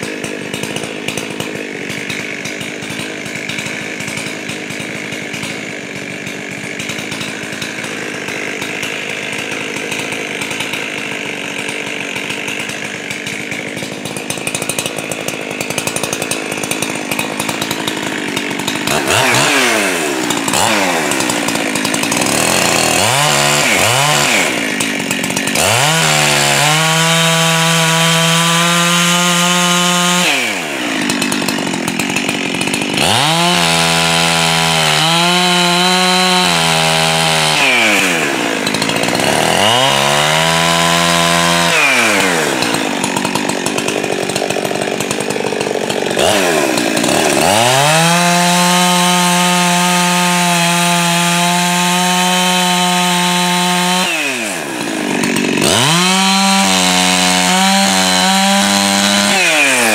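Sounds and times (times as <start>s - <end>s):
chainsaw cutting a log: 0.0s - 59.9s.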